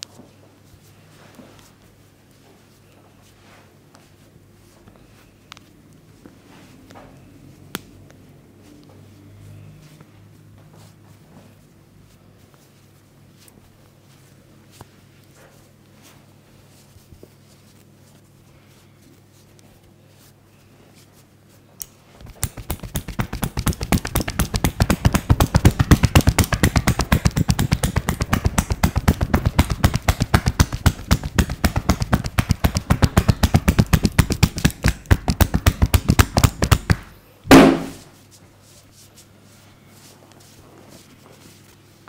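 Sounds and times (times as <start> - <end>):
percussive massage slaps: 22.2 - 38.0.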